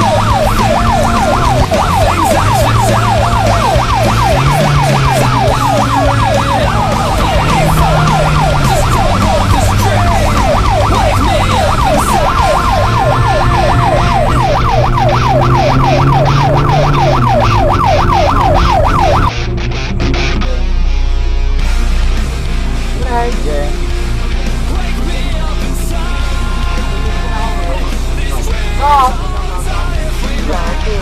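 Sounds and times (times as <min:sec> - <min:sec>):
siren-like yelping wail: 0:00.0 - 0:19.3
low droning tone: 0:00.0 - 0:30.4.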